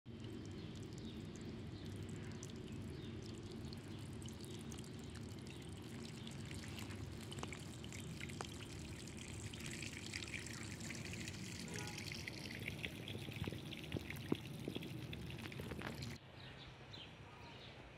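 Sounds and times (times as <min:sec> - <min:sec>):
water trickling: 0:00.1 - 0:16.2.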